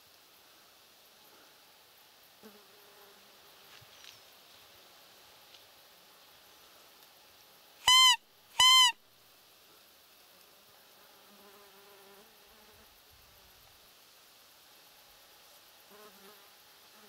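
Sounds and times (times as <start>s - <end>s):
faint insect buzz: 0.0s - 17.0s
squeaky deer call: 7.8s - 9.0s.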